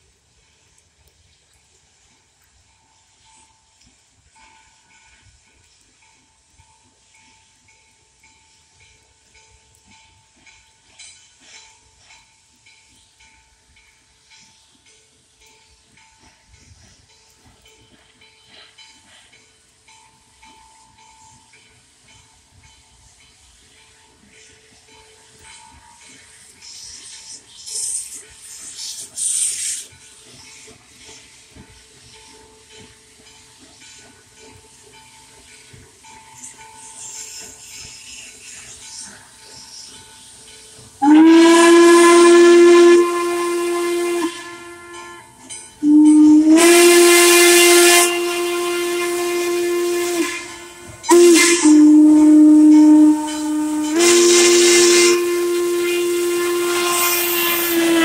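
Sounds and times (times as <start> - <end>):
steam hissing: 0.0 - 58.0
steam locomotive exhaust beats: 0.0 - 58.0
steam locomotive whistle: 41.0 - 58.0.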